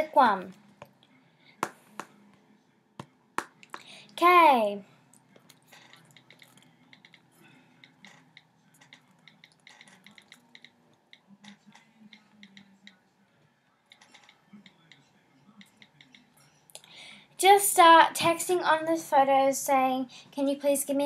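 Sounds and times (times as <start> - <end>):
fingertips tapping touchscreen: 5.4 - 13.0, 13.9 - 16.4.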